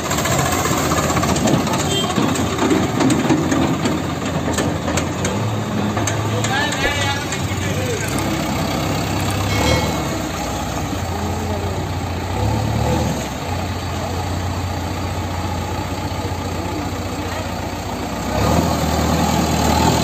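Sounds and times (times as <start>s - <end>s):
diesel engine running: 0.0s - 20.0s.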